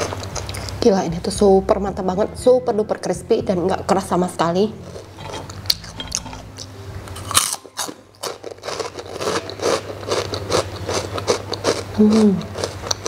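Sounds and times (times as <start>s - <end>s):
crunchy chewing: 4.8s - 13.0s.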